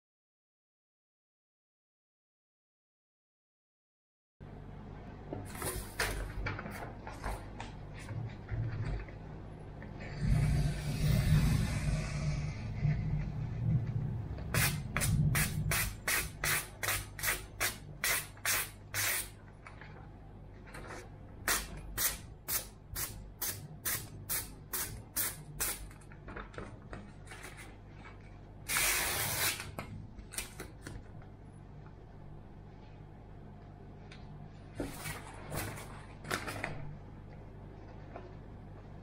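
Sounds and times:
paper rustling: 5.5 - 9.2, 25.9 - 28.4, 34.8 - 37.0.

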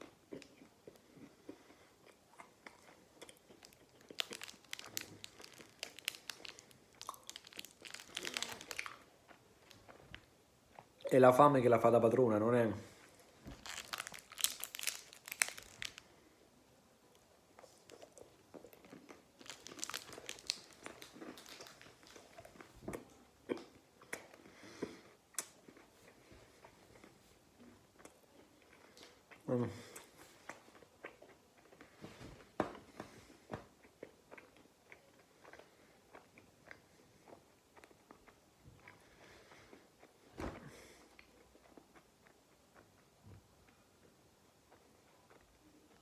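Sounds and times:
chewing and crunching: 0.0 - 11.0, 13.0 - 16.1, 17.6 - 32.0, 33.1 - 46.0
plastic wrapper crinkling: 3.6 - 10.3, 13.4 - 16.1, 17.8 - 22.6.

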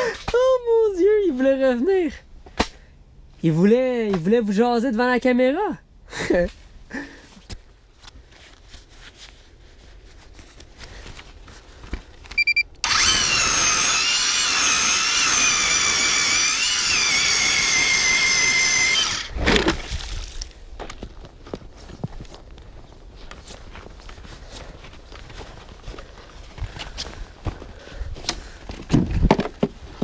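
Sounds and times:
short beeps: 12.4 - 12.8
electric ice auger motor whining: 12.8 - 19.4.

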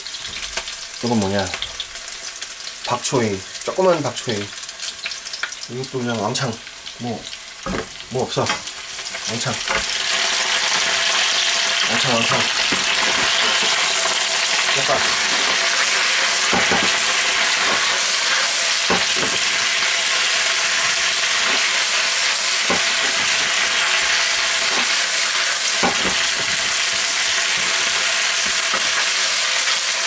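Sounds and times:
vegetables sizzling in oil: 0.0 - 30.0
spatula scraping and knocking pan: 9.6 - 29.2.

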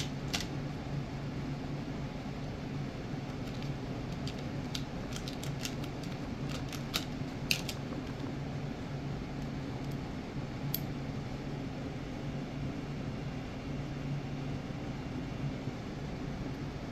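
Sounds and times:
small parts clicking in plastic box: 0.0 - 0.5, 3.3 - 8.3
steady low hum: 0.0 - 16.9.

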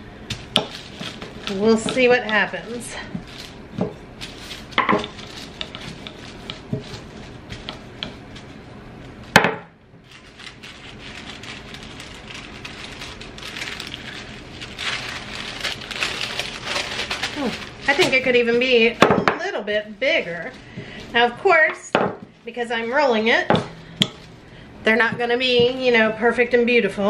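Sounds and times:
wax paper crinkling: 0.2 - 9.2, 10.0 - 21.7
rolling pin on dough: 0.3 - 8.6.

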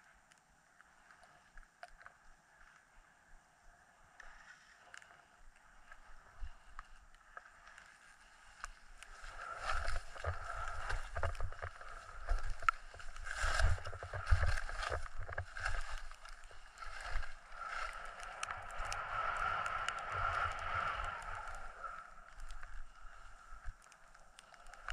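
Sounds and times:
ski edges scraping over snow: 7.4 - 24.9
wind buffeting the microphone: 9.5 - 22.3.

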